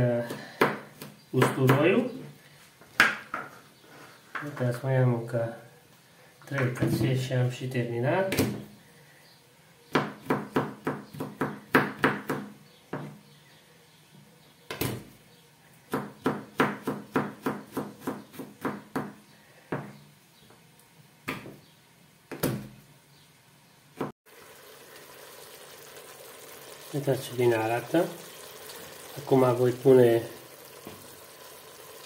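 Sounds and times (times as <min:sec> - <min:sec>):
faint steady hiss: 0:00.0 - 0:11.0, 0:18.9 - 0:32.0
knife chopping on plastic board: 0:15.9 - 0:19.2.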